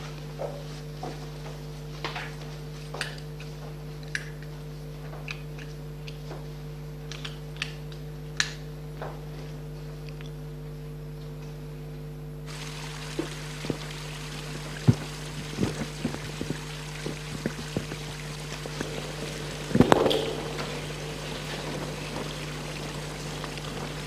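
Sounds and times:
steady electrical hum: 0.0 - 24.0.

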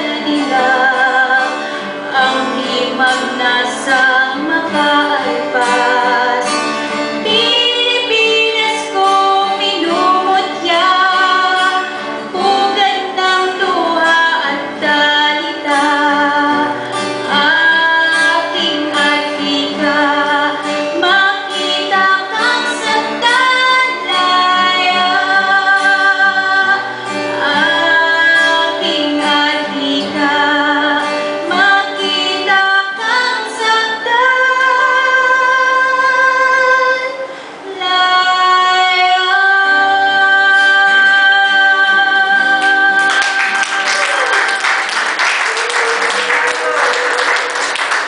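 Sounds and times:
woman singing: 0.0 - 45.2
acoustic guitar: 0.0 - 48.0
applause: 42.6 - 48.0.

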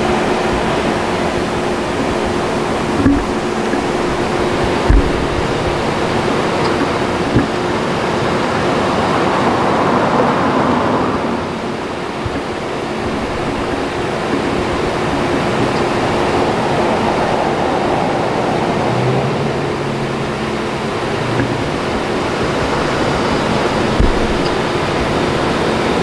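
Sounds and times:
low engine hum: 0.0 - 26.0
roadside traffic: 0.0 - 26.0.

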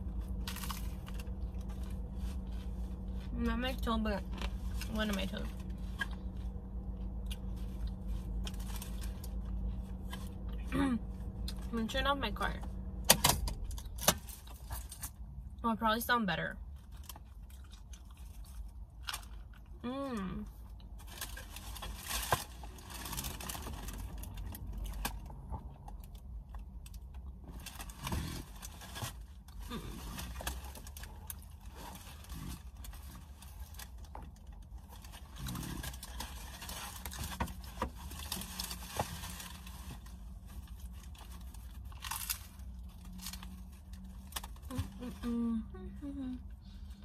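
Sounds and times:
paper wrapper crinkling: 0.0 - 3.3, 27.5 - 44.8
person chewing food: 16.9 - 19.8.

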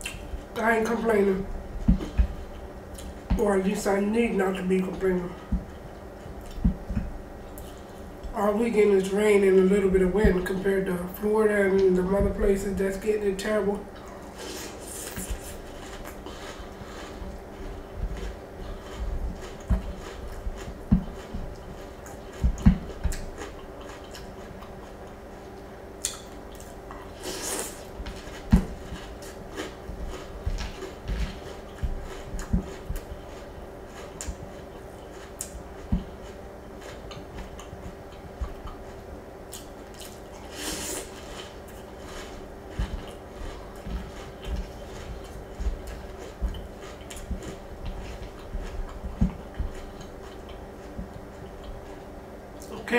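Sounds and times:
chewing cereal: 14.0 - 52.7.

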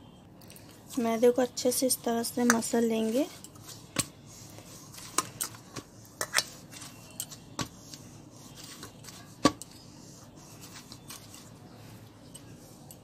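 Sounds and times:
dough kneaded by hand: 0.7 - 13.0.

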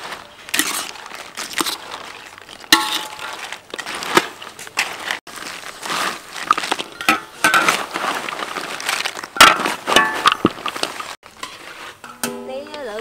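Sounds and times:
fried chips rustling and crunching: 0.0 - 12.0
metal tongs scraping a wok: 0.5 - 1.8, 11.3 - 13.0.

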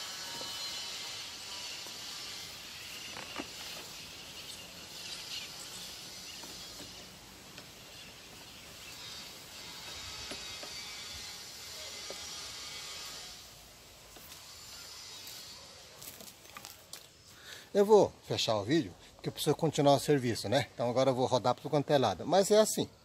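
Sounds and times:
sprayer nozzle hissing: 0.0 - 9.4.

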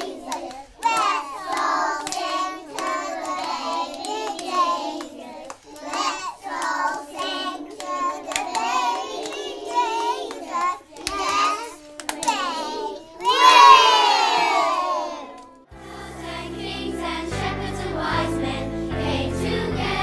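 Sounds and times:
children clapping hands: 0.0 - 15.6
children singing together: 0.0 - 20.0.

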